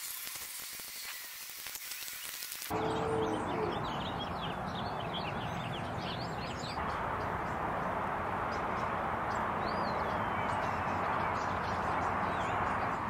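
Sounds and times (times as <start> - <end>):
small birds chirping: 1.8 - 7.6
rushing outdoor background noise: 2.7 - 13.0.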